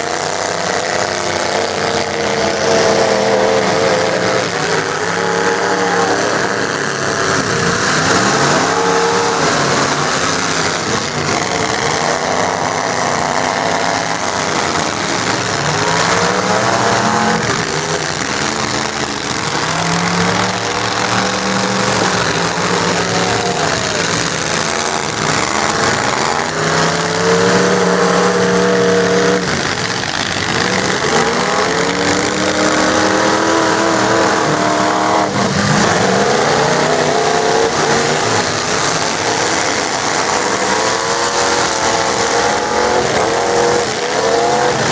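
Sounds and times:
truck engines revving: 0.0s - 44.9s.

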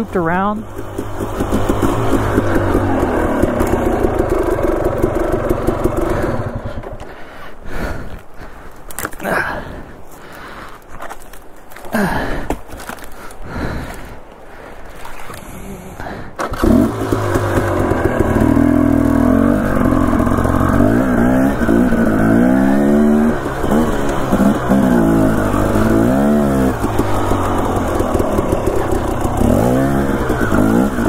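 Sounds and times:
dirt bike engine revving: 0.0s - 7.0s, 16.4s - 31.0s.

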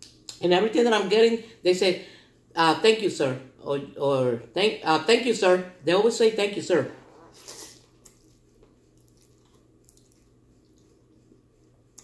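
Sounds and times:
chewing noodles: 7.3s - 12.0s.

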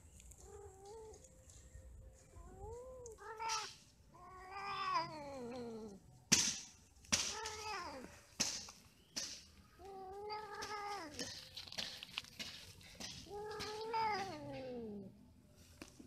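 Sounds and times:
cats yowling: 2.4s - 6.0s, 9.8s - 11.3s, 13.1s - 15.1s.

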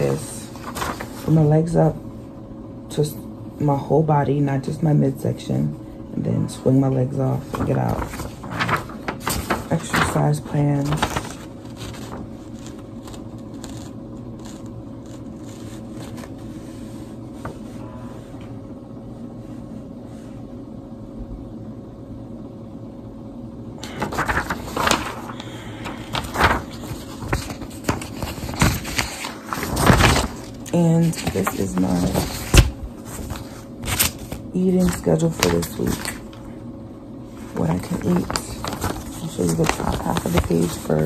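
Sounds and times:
paper rustling: 0.0s - 1.8s, 6.5s - 17.8s, 23.8s - 36.5s, 37.3s - 41.0s
low room hum: 0.0s - 41.0s.

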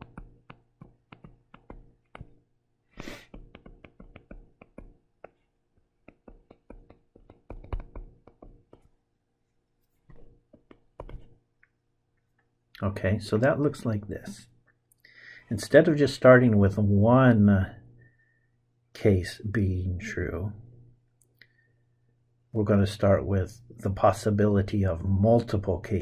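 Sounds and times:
stylus tapping and scratching: 0.0s - 9.1s, 9.8s - 12.4s.

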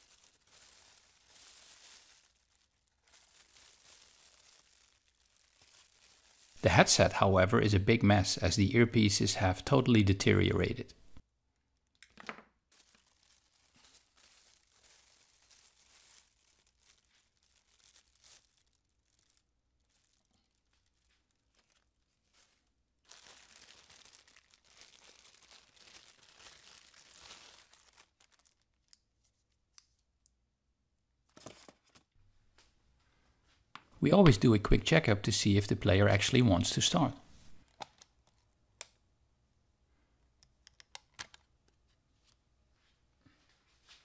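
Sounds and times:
plastic bags crinkling: 0.0s - 7.2s, 12.7s - 29.0s.

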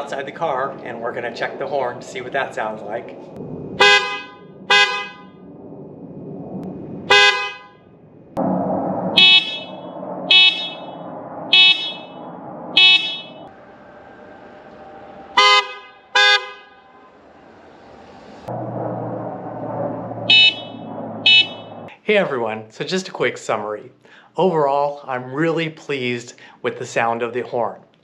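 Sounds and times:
deep car horn honks: 3.8s - 5.3s, 7.1s - 7.8s, 8.4s - 13.5s, 15.4s - 16.9s, 20.2s - 21.9s.

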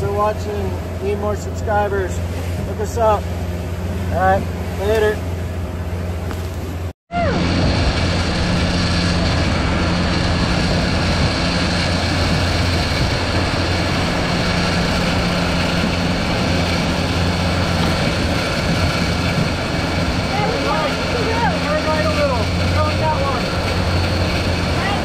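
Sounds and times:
boat engine droning: 0.0s - 25.0s.

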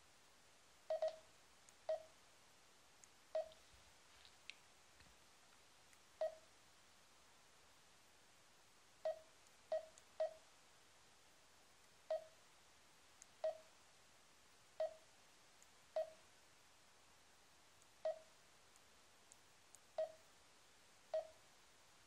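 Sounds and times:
short touchscreen beeps: 0.9s - 1.2s.

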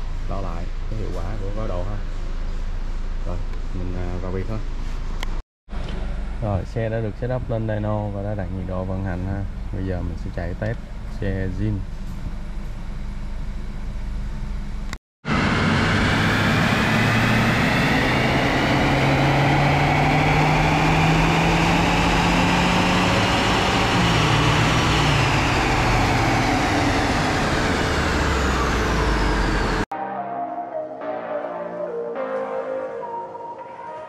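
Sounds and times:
dyno rollers whining: 14.3s - 29.9s
car engine revving: 15.3s - 29.9s.

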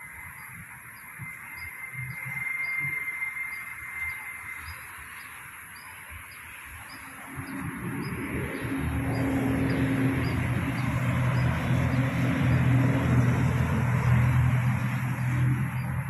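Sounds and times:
steady high hiss: 0.0s - 12.5s
motor vehicle: 0.0s - 16.0s.

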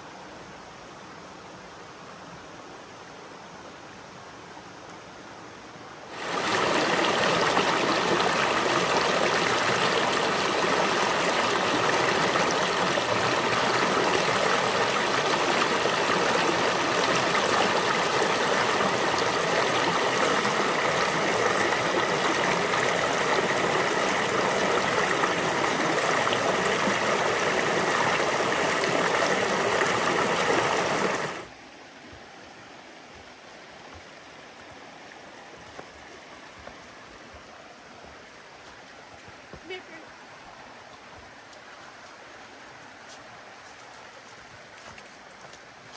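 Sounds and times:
water rushing over rocks: 6.1s - 31.6s.

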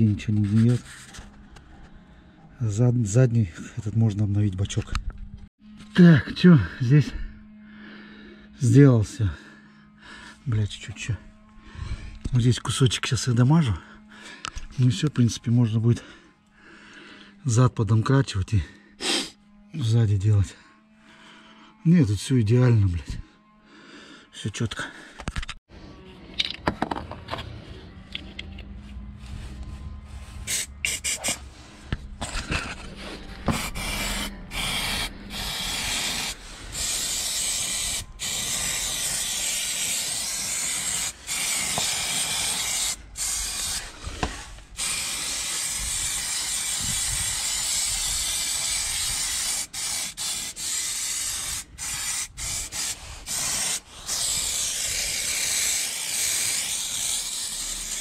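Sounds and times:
aerosol can spraying: 30.4s - 31.5s, 33.5s - 58.0s.

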